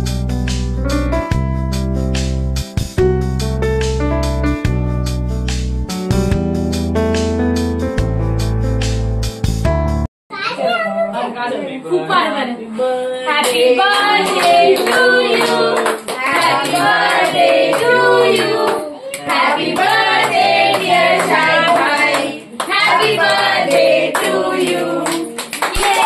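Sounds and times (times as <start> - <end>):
group singing a celebration song: 13.1 - 26.0
hands clapping: 13.4 - 26.0.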